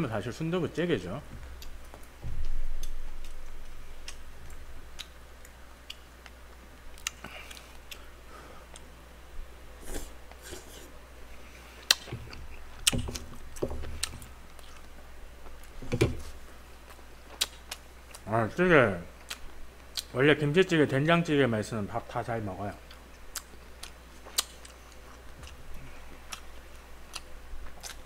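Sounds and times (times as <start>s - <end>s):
person chewing food: 1.4s - 9.0s, 9.8s - 18.2s, 22.8s - 28.0s.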